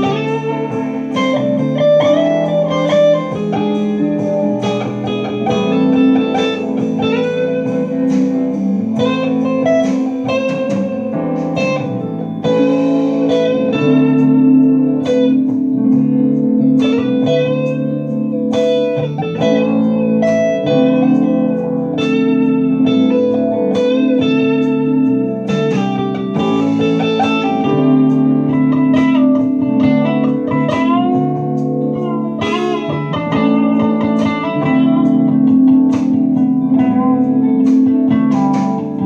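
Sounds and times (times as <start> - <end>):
blues backing track: 0.0 - 39.0
electric guitar blues solo: 0.0 - 39.0.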